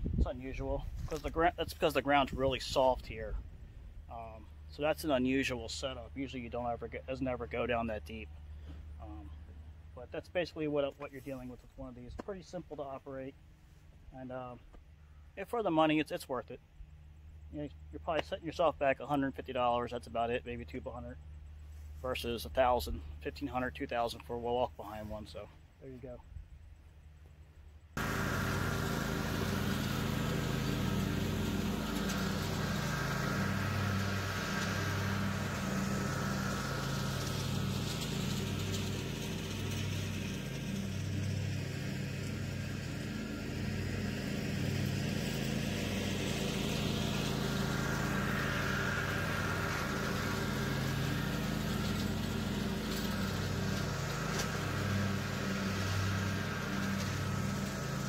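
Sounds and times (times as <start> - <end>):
lawn mower engine running: 0.0 - 15.3, 27.0 - 58.0.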